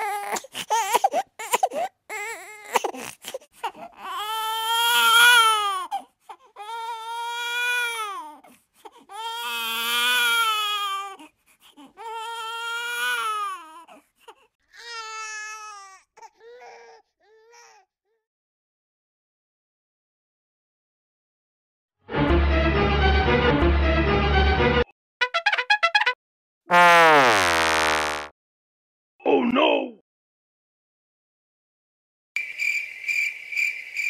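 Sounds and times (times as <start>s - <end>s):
baby crying: 0.0s - 14.0s, 14.7s - 18.2s
baby sobbing: 0.0s - 18.2s.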